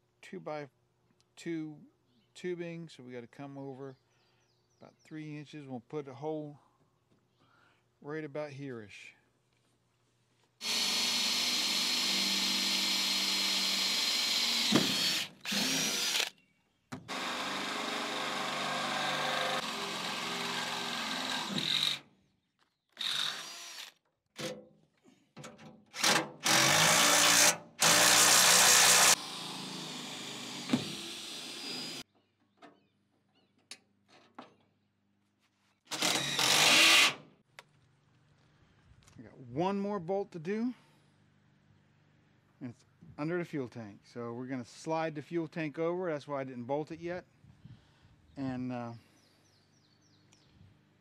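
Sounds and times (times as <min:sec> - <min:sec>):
power drill drilling into wood: 0:10.6 - 0:16.3, 0:17.1 - 0:22.0, 0:23.0 - 0:24.0, 0:26.0 - 0:32.0, 0:35.9 - 0:37.2.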